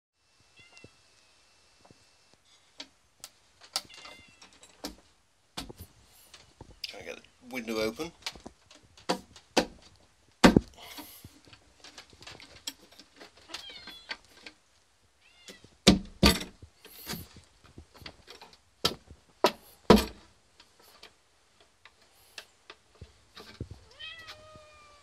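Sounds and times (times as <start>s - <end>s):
cat meowing: 3.8s - 4.5s, 13.5s - 14.2s, 15.2s - 15.7s, 23.8s - 25.0s
window frame knocking: 9.1s - 10.7s, 15.8s - 16.6s, 18.9s - 20.2s.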